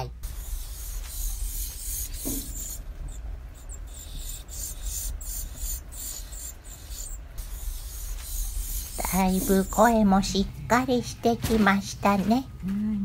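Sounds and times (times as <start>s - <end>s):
low steady rumble: 0.0s - 13.0s
nestlings calling: 0.2s - 10.4s.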